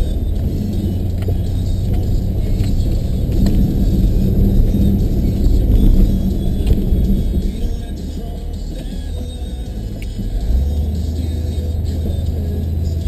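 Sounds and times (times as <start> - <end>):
truck engine low rumble: 0.0 - 13.0.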